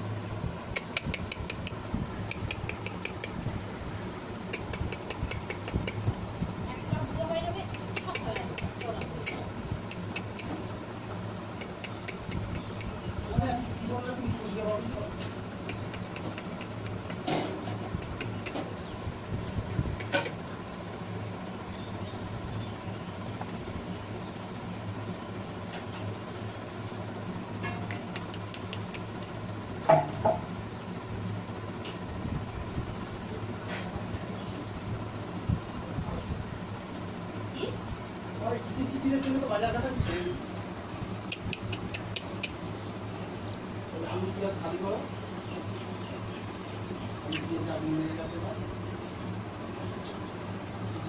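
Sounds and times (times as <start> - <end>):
steady low hum: 0.0 - 51.0
quick sharp clicks: 0.7 - 3.4, 4.5 - 6.2, 11.6 - 13.0, 15.2 - 18.7, 27.8 - 29.4, 41.2 - 42.6.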